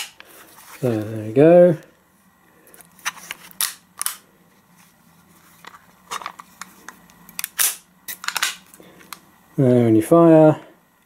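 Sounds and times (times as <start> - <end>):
metal pistol clicks and snaps: 7.3 - 7.8.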